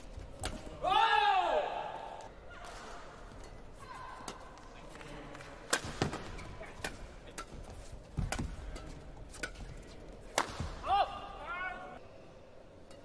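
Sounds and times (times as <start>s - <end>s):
man shouting: 0.8s - 2.0s, 10.8s - 12.0s
rackets striking shuttlecock: 5.6s - 10.9s.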